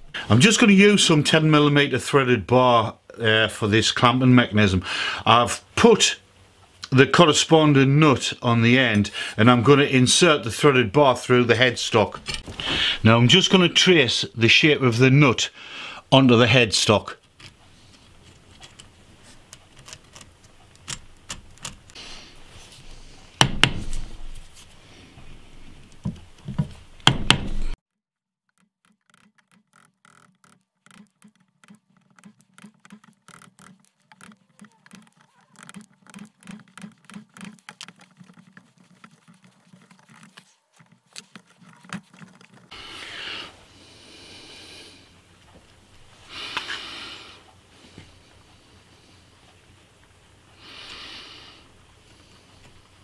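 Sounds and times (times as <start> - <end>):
chisel tapping and scraping wood: 18.2 - 22.0, 28.8 - 42.7.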